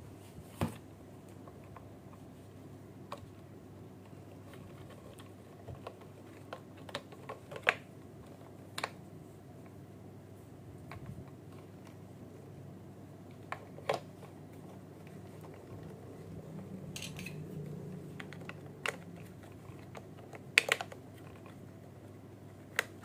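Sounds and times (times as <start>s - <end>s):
faint low hum: 0.0s - 23.0s
toy packaging clicks and taps: 18.2s - 21.6s.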